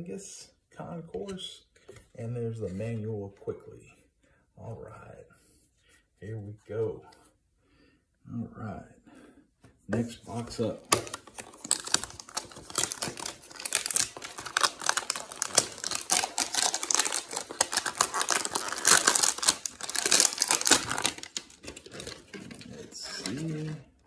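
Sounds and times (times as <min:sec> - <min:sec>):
cardboard box tearing: 0:10.8 - 0:23.7.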